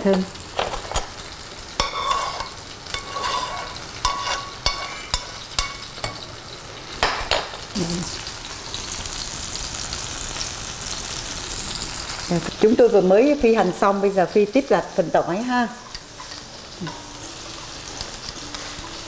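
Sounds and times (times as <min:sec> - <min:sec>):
hot oil sizzling in a pan: 0:00.0 - 0:19.0
chopsticks scraping a frying pan: 0:00.1 - 0:06.4, 0:15.8 - 0:17.1.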